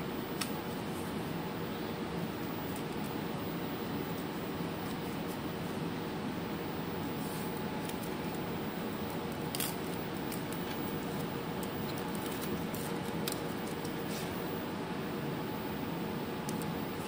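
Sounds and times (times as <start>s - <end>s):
steady hum: 0.0s - 17.0s
adhesive tape crinkling: 7.2s - 8.4s, 9.0s - 14.5s.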